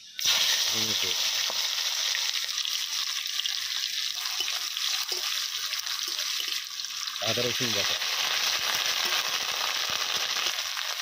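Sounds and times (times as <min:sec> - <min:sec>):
seeds sizzling in hot oil: 0:00.0 - 0:11.0
seeds popping: 0:08.0 - 0:11.0.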